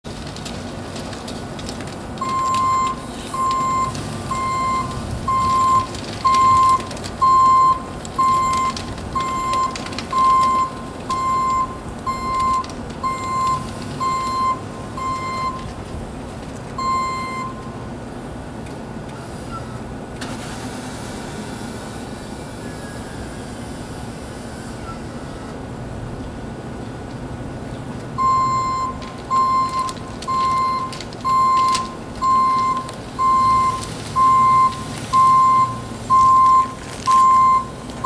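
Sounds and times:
truck engine running: 0:00.0 - 0:38.0
truck backup alarm beeping: 0:02.2 - 0:15.8, 0:16.8 - 0:17.8, 0:28.2 - 0:38.0.

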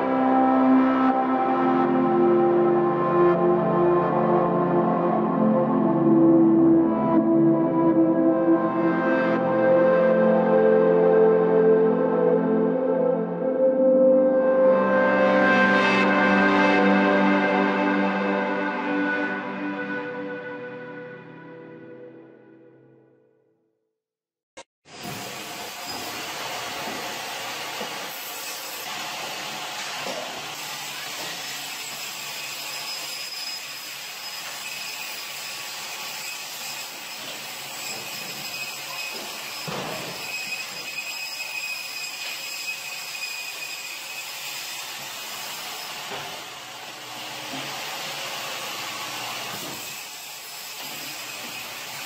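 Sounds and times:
band saw cutting frozen fish: 0:25.3 - 0:46.3, 0:47.3 - 0:52.0.

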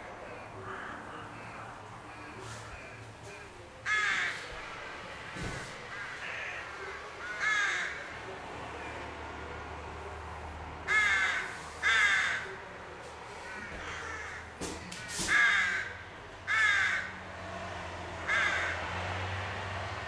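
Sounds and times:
rooks cawing: 0:00.3 - 0:04.6, 0:05.5 - 0:08.2, 0:10.8 - 0:12.7, 0:13.3 - 0:17.2, 0:18.2 - 0:19.0.

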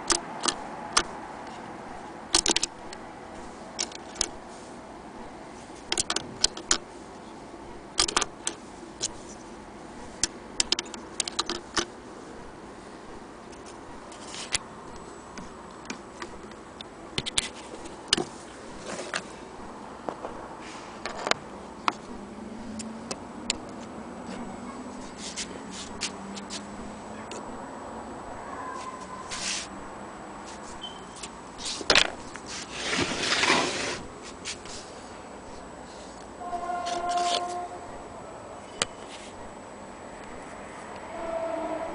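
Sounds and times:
scraping rub: 0:25.0 - 0:26.7, 0:28.8 - 0:29.7, 0:31.6 - 0:35.0, 0:35.9 - 0:37.8.

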